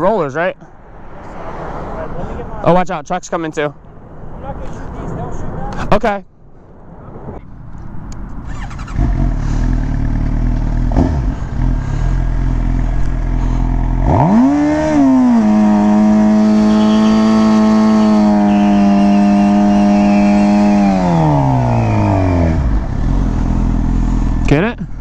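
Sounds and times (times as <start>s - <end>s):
motorcycle engine revving: 8.4s - 24.6s.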